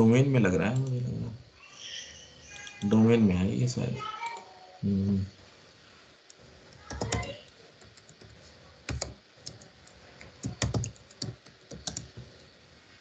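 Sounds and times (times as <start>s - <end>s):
keyboard typing clicks: 6.8s - 12.4s.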